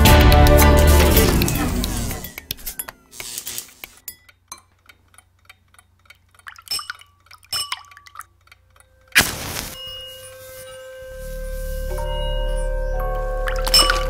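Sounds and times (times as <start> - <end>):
faint clicks and ticks: 0.2 - 9.2
match struck flaring with hiss: 9.2 - 10.0.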